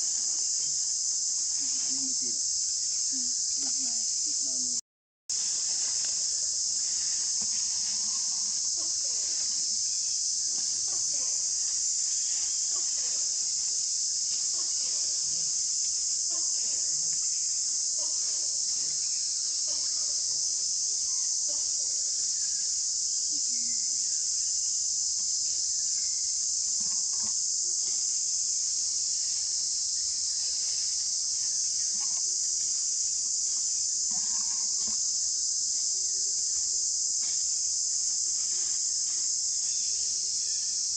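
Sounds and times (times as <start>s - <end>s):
insects chorus: 0.0s - 40.9s.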